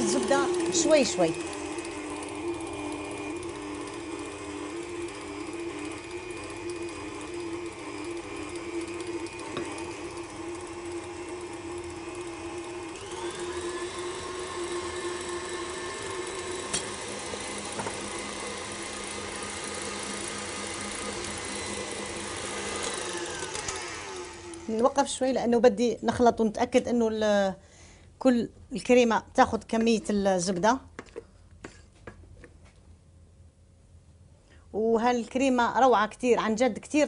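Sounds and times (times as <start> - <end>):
stand mixer motor running: 0.0 - 24.9.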